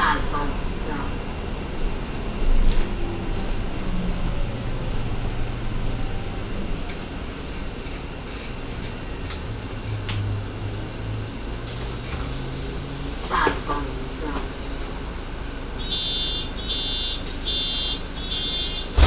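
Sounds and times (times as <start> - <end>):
bus engine drone: 0.0 - 19.0
road noise: 0.0 - 19.0
rattles and clicks from bus body: 1.5 - 10.6, 11.6 - 12.6, 13.2 - 15.7, 18.8 - 19.0.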